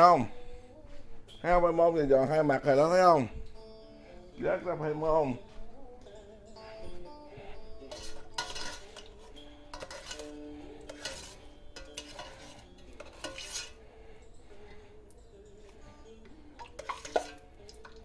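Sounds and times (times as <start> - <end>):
metal utensil scraping a pot: 7.8 - 13.9, 16.2 - 18.0.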